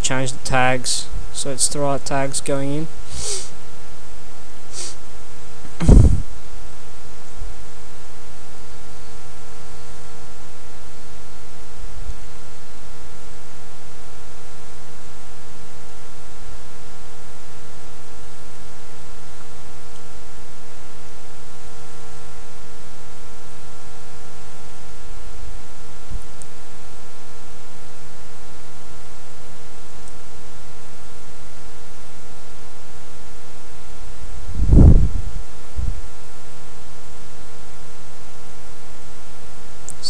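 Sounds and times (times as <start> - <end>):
constant hiss: 0.0 - 6.5
electrical hum: 0.0 - 40.0.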